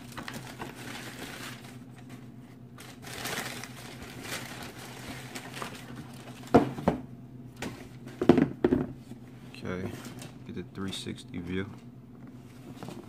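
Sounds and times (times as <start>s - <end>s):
tissue paper rustling: 0.0s - 6.4s.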